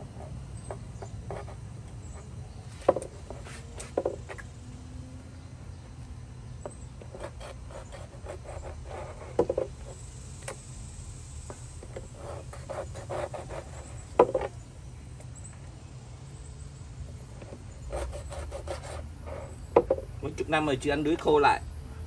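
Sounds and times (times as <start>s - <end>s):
knife tapping and scraping board: 14.2s - 14.5s.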